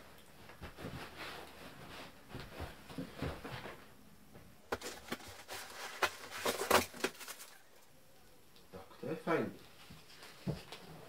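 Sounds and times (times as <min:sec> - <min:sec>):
sharp crinkles and knocks: 0:02.4 - 0:07.9
cardboard and packing rustling: 0:04.6 - 0:07.8.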